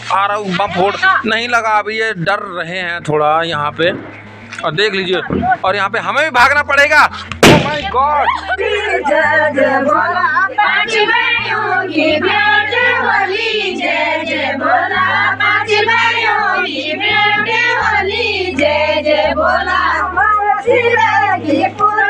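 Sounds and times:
low bass line: 0.0 - 21.9
group singing folk song: 7.3 - 22.0.

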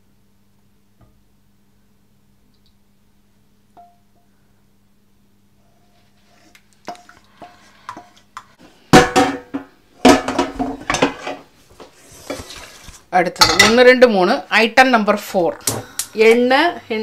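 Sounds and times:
pan clattering on hob: 9.0 - 11.5
wooden spatula scraping metal pan: 12.0 - 13.0.

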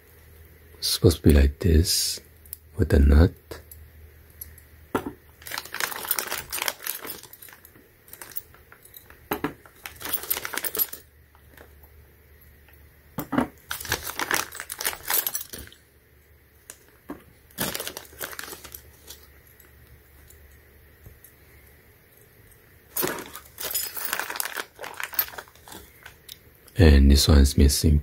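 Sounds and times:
metal parts clinking: 5.4 - 11.6, 13.2 - 15.8, 17.6 - 19.3, 22.9 - 26.3
plastic bag crinkling: 5.4 - 11.7, 13.6 - 15.8, 16.6 - 19.3, 22.9 - 26.4.

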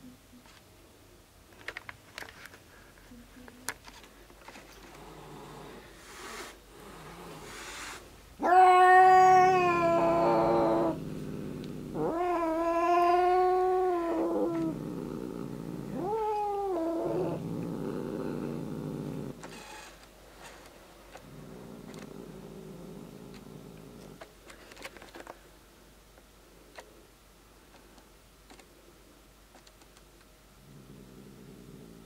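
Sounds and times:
cat grumbling low and rough: 6.7 - 7.6, 8.4 - 19.4, 21.2 - 24.2, 30.6 - 32.0
cat yowling: 8.4 - 11.1, 11.9 - 14.7.

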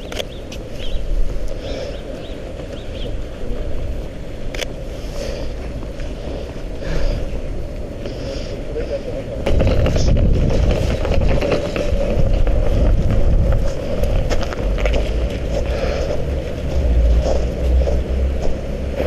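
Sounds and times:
steady low rumble: 0.0 - 19.0
footsteps crunching in snow: 9.5 - 19.0.

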